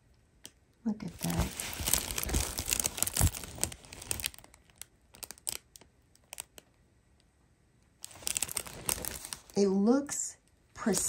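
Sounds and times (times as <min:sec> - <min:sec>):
plastic film crinkling: 0:01.0 - 0:06.7, 0:08.0 - 0:09.6.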